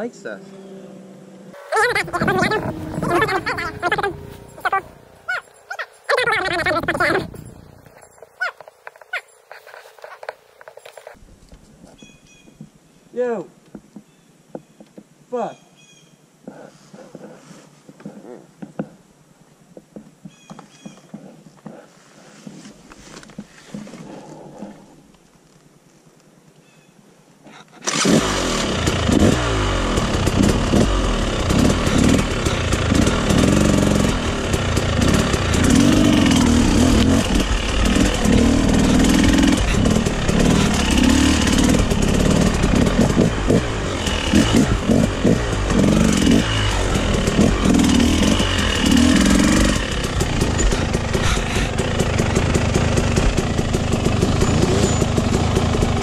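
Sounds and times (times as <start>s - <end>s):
dirt bike engine revving: 0.7s - 8.5s, 27.8s - 56.0s.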